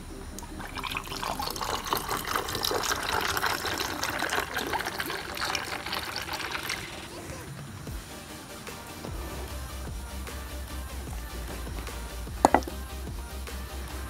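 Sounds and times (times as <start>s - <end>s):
liquid pouring over ice: 0.6s - 7.2s.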